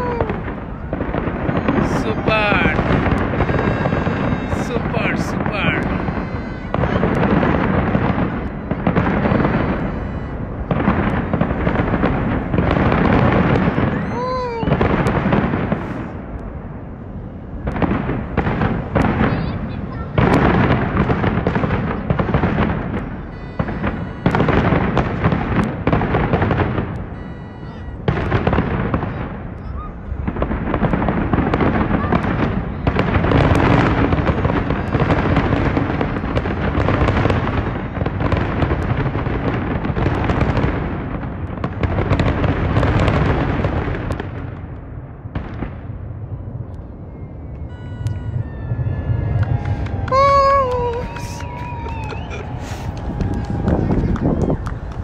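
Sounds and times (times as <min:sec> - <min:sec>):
fireworks banging and crackling: 0:00.0 - 0:55.0.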